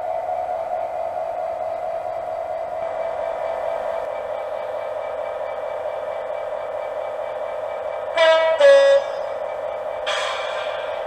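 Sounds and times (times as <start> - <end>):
diesel locomotive engine idling: 0.0 - 11.0
two-tone locomotive horn: 8.1 - 9.4.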